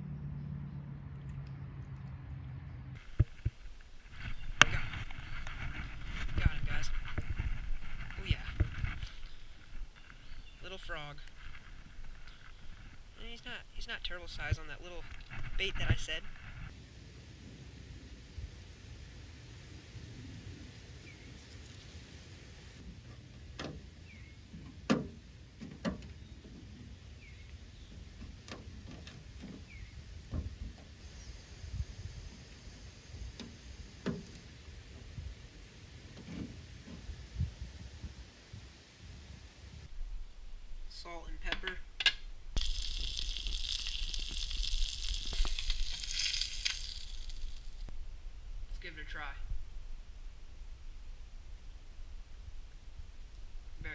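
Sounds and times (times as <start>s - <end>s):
small crackles: 3.0s - 16.8s, 42.0s - 48.0s
low steady rumble: 39.4s - 53.9s
food sizzling in oil: 42.6s - 47.9s.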